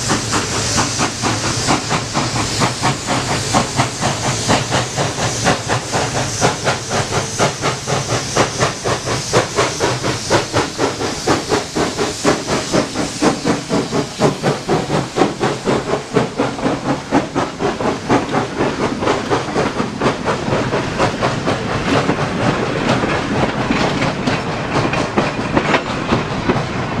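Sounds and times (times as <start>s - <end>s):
steam hissing: 0.0s - 27.0s
steam locomotive exhaust chuffing: 0.0s - 27.0s.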